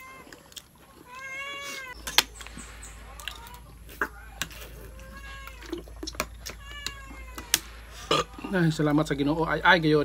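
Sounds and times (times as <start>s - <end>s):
cat meowing: 1.0s - 2.0s, 3.0s - 8.5s.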